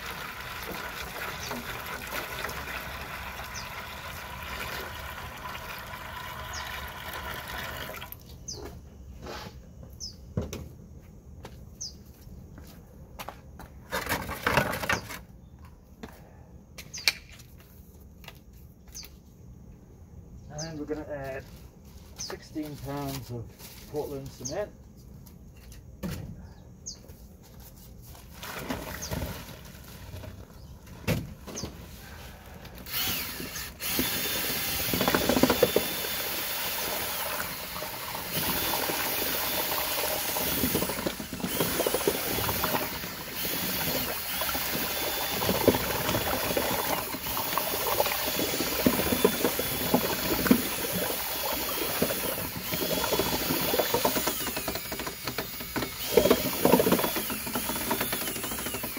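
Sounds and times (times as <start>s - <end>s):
electric drill mixing cement: 0.0s - 8.2s, 32.8s - 58.9s.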